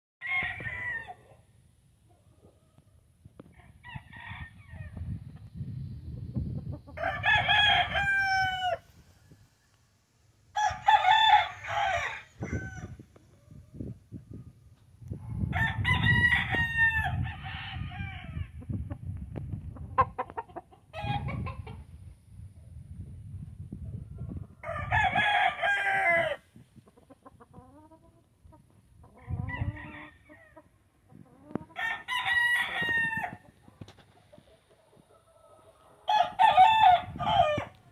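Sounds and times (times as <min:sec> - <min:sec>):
rooster crowing: 0:07.0 - 0:08.8, 0:10.5 - 0:13.0, 0:24.6 - 0:26.4, 0:31.8 - 0:33.4, 0:36.1 - 0:37.7.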